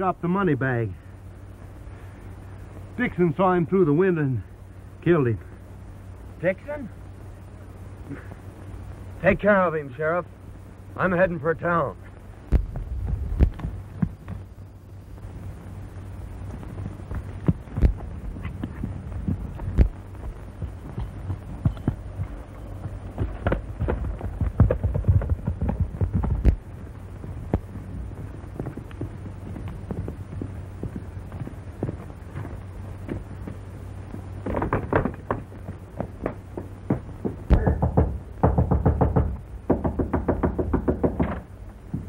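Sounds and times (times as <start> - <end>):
low soundtrack hum: 0.0 - 38.5
horse galloping hoofbeats: 12.5 - 14.6, 16.1 - 42.0
fast knocks: 20.6 - 26.6, 34.4 - 42.0.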